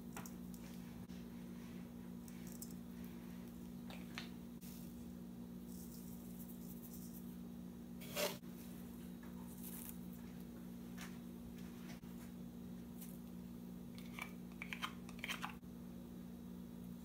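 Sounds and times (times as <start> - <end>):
steady low hum: 0.0 - 17.0
spoon scraping in steel bowl: 8.0 - 8.4.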